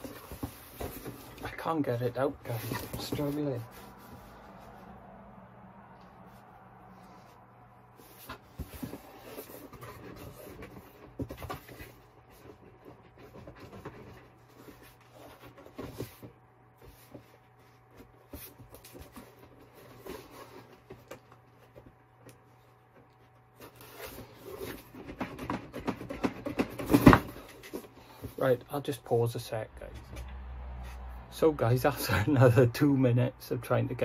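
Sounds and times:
cardboard box scraping and rubbing: 0:07.9 - 0:21.0.

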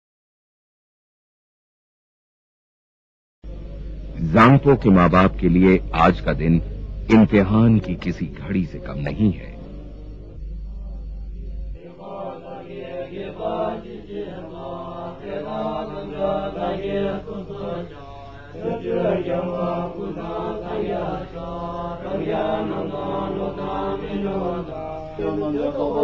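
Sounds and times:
low held tone: 0:03.5 - 0:14.4
monks chanting: 0:07.1 - 0:26.0.

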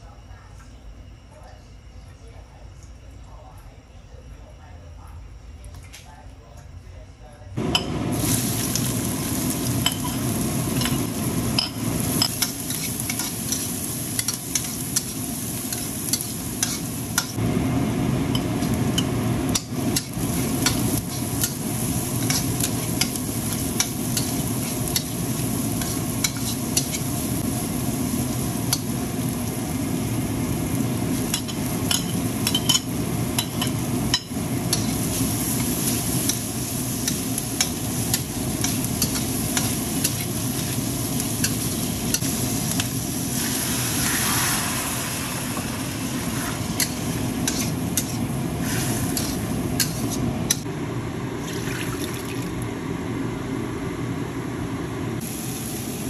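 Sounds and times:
vegetables sizzling in oil: 0:07.6 - 0:50.7, 0:55.2 - 0:56.0
metal spatula scraping a wok: 0:34.7 - 0:36.4, 0:46.3 - 0:50.6.

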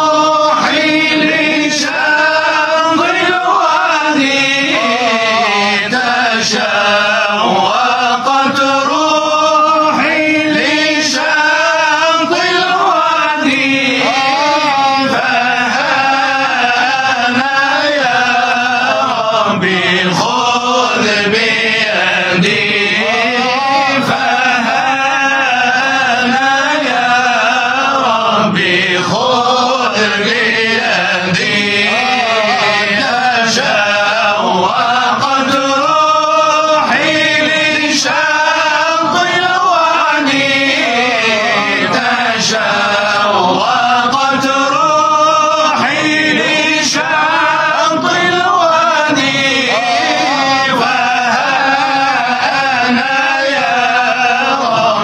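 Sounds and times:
men chanting: 0:00.0 - 0:55.0.

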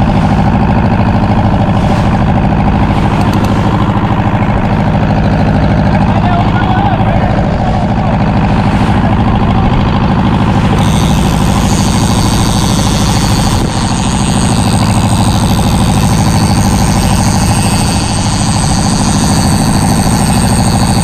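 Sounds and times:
boat diesel engine knocking: 0:00.0 - 0:21.0.

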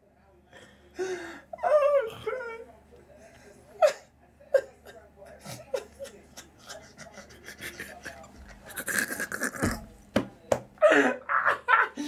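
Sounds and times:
men wheezing with laughter: 0:10.8 - 0:12.0.

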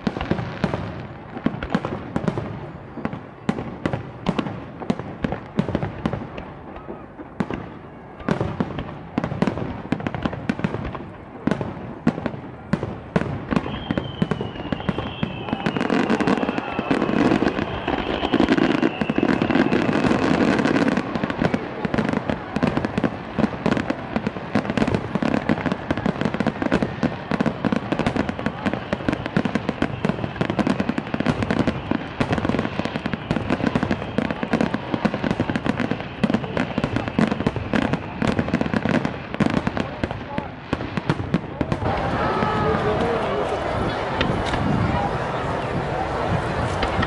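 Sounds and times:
faint high falling whistle: 0:13.6 - 0:20.2.

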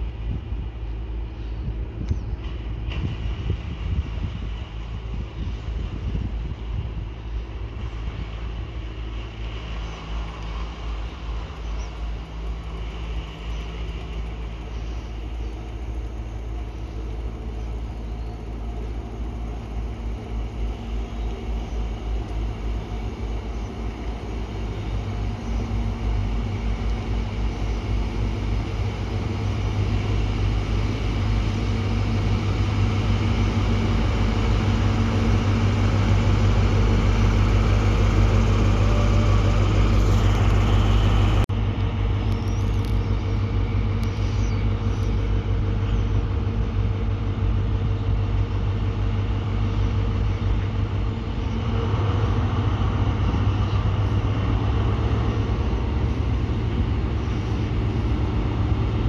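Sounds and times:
train humming: 0:00.0 - 0:59.0.

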